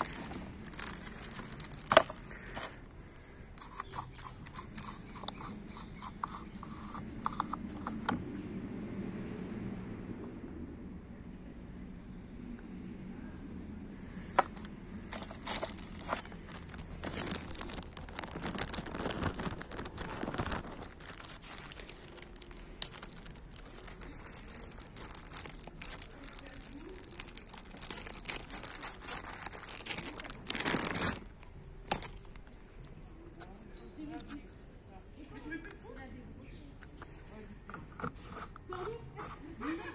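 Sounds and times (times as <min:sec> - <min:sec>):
plastic bag crinkling: 0:00.0 - 0:02.8, 0:03.6 - 0:08.0, 0:14.4 - 0:32.5.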